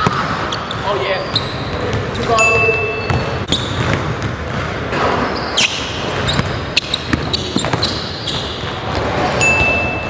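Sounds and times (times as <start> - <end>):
shoe squeak: 0.4 - 4.0, 5.0 - 8.7, 9.4 - 10.0
basketball bouncing on hardwood floor: 3.1 - 5.2, 6.1 - 10.0.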